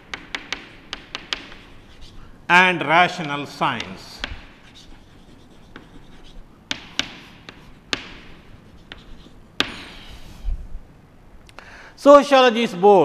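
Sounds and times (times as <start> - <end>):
chalk tapping on board: 0.0 - 2.2, 3.1 - 10.1
chalk scratching on blackboard: 0.1 - 2.3, 3.1 - 10.4.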